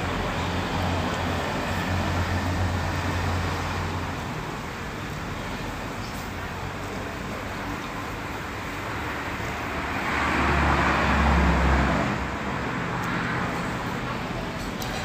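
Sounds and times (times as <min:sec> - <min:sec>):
background traffic noise: 0:00.0 - 0:15.0
vehicle passing by: 0:09.6 - 0:14.4.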